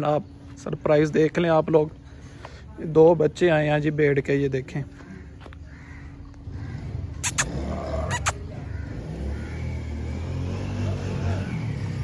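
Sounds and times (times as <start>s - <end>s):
vehicle engine running: 4.8s - 12.0s.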